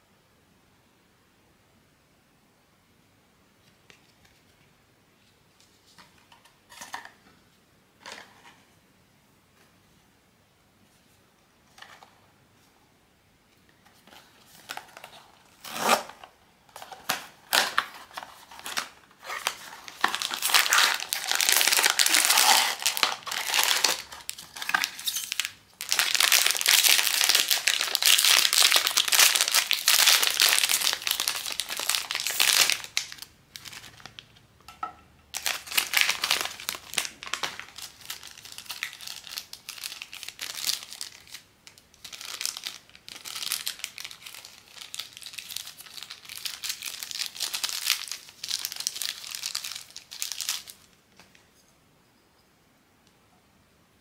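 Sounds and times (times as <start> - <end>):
plastic packaging crinkling: 13.9 - 34.4, 35.3 - 50.9.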